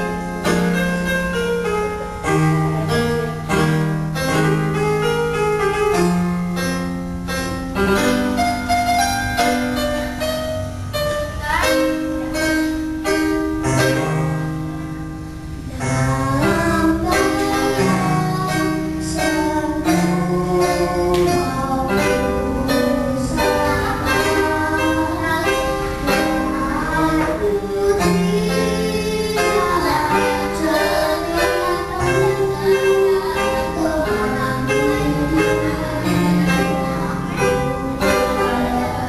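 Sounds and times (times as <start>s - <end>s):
electronic keyboard accompaniment: 0.0s - 39.0s
girl singing into a microphone: 11.2s - 12.8s, 15.6s - 39.0s.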